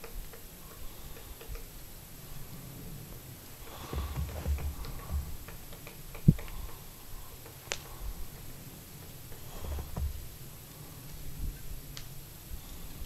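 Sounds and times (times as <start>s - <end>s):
woodpecker pecking bark: 0.0s - 2.0s, 3.6s - 10.3s
low rumbling: 3.6s - 5.5s
low thump: 3.8s - 5.4s.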